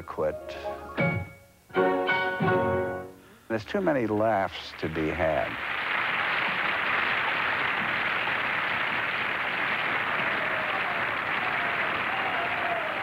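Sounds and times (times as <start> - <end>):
audience applause: 4.1 - 13.0.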